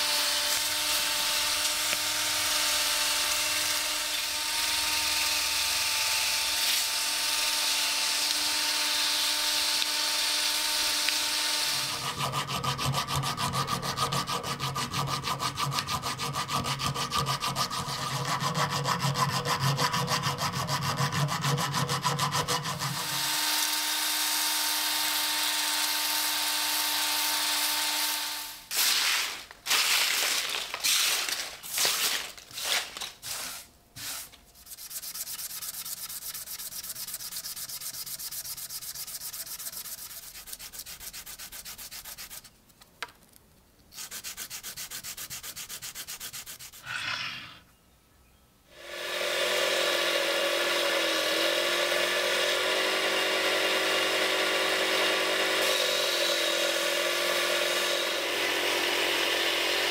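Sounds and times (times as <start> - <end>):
file scraping steel: 11.7 - 23.2, 32.6 - 42.6, 43.9 - 47.6
washer rubbed on sandpaper: 11.8 - 23.2, 30.9 - 42.6, 43.9 - 47.4
sandpaper scraps rustling: 28.7 - 42.6, 43.9 - 47.0.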